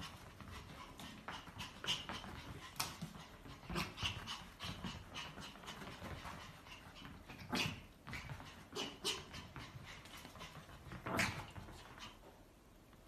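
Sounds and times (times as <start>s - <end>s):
dog panting: 0.0s - 12.3s.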